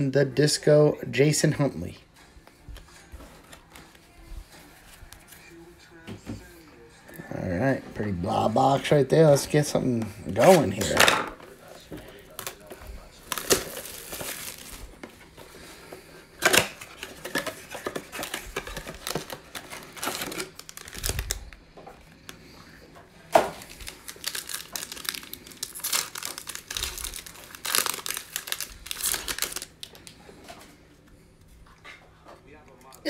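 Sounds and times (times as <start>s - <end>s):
plastic shrink-wrap crinkling and tearing: 8.3s - 22.4s, 23.2s - 30.3s.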